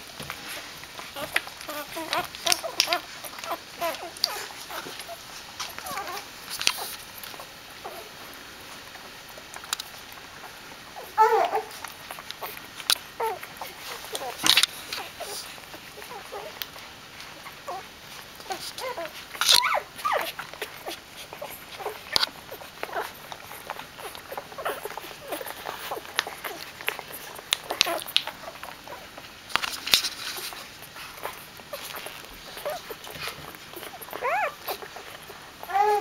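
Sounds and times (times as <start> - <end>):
rustling: 0.0 - 36.0
puppies squeaking and whimpering: 0.4 - 8.3, 10.0 - 36.0.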